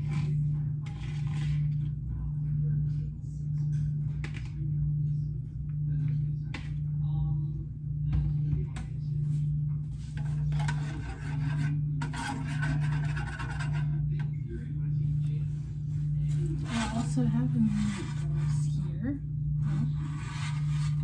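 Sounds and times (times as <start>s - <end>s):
rasping scraping strokes: 10.2s - 14.1s, 19.6s - 21.0s.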